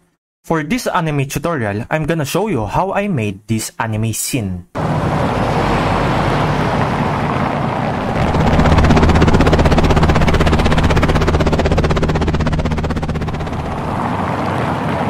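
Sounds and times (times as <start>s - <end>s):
helicopter rotor beat: 4.8s - 15.0s
helicopter rushing noise: 4.8s - 15.0s.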